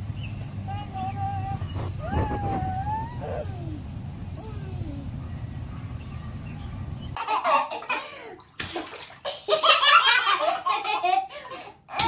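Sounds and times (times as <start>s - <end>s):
low outdoor rumble: 0.0s - 7.4s
baby laughing: 2.1s - 3.8s, 7.2s - 8.3s, 9.3s - 12.0s.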